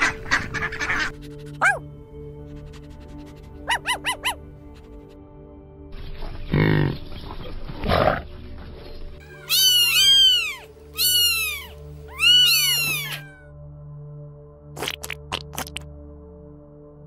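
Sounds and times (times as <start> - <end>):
soft background music: 0.0 - 17.0
kitten meowing: 9.3 - 13.4.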